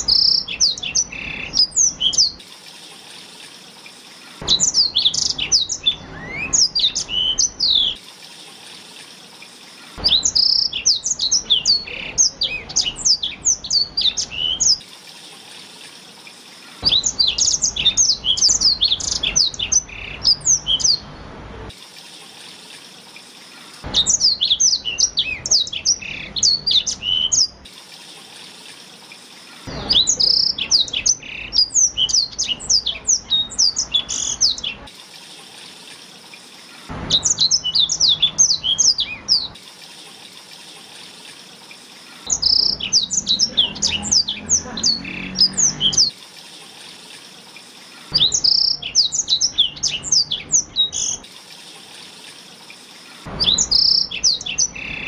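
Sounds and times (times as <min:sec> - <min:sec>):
canary singing high twitters: 0:00.0 - 0:21.2, 0:23.1 - 0:27.7, 0:28.4 - 0:34.9, 0:36.3 - 0:39.6, 0:41.6 - 0:46.2, 0:47.5 - 0:52.0, 0:52.6 - 0:55.0.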